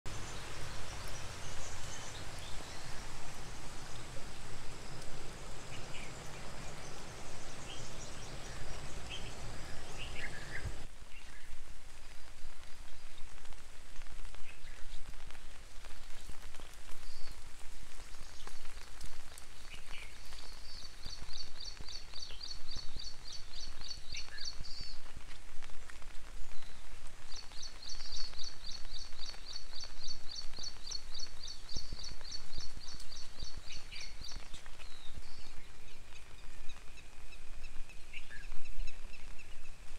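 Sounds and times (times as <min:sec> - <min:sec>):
dripping ticks: 0:00.1 - 0:10.8
low background rush: 0:00.1 - 0:10.9
light rain on foliage: 0:00.1 - 0:39.9.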